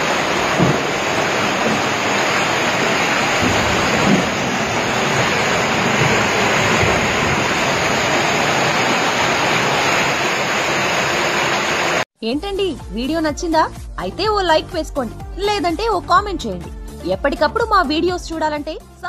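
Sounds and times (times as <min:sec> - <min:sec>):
floodwater rushing: 0:00.0 - 0:12.1.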